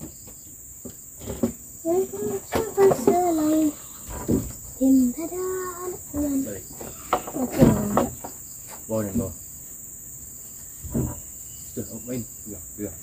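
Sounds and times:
insect chorus drone: 0:00.0 - 0:13.0
people's voices: 0:01.9 - 0:08.3.

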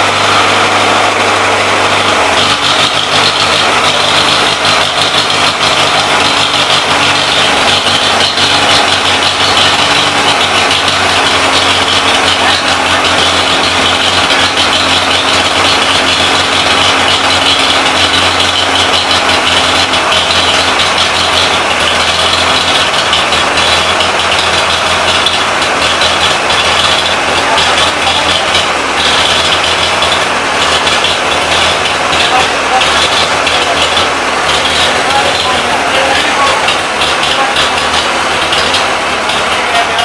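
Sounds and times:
generator engine humming: 0:00.0 - 0:40.0.

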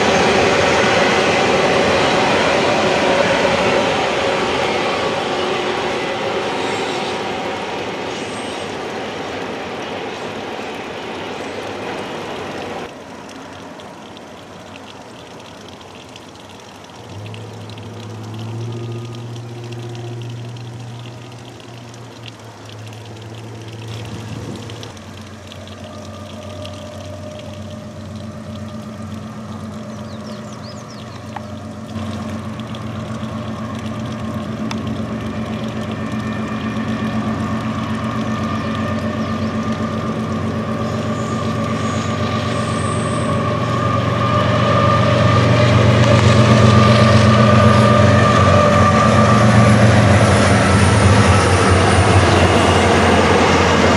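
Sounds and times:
freight train rolling: 0:00.0 - 0:10.6, 0:38.0 - 0:53.9
locomotive engine drone: 0:00.0 - 0:53.9.

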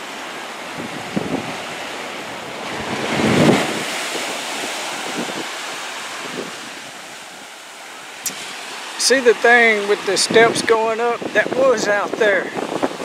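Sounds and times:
small waves breaking on beach: 0:00.0 - 0:13.0
wind gusts on microphone: 0:00.0 - 0:13.0.

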